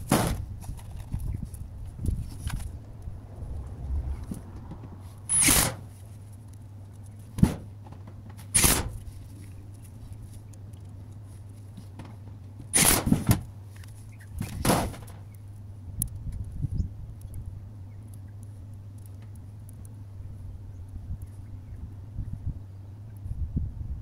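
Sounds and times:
steady low hum: 0.0 - 24.0
short knocks and scrapes: 7.3 - 9.5.

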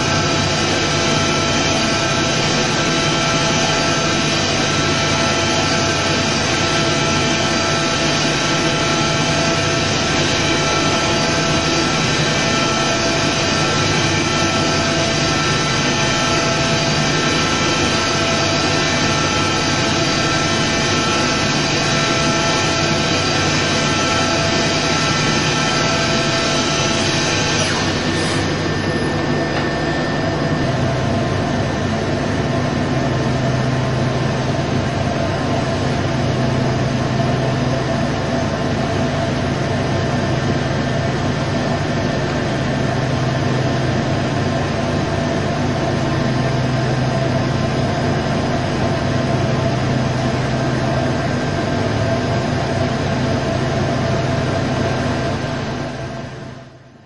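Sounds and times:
machine low mechanical hum: 0.0 - 57.0.

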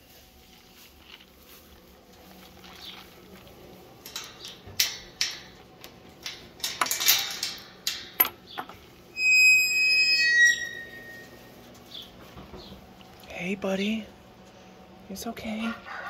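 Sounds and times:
metal chain latch rattling: 6.2 - 8.7
high steady squeal: 9.1 - 11.6.

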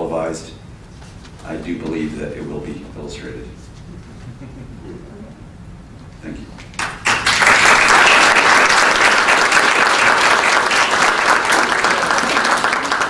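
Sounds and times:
audience applauding: 6.6 - 13.0.

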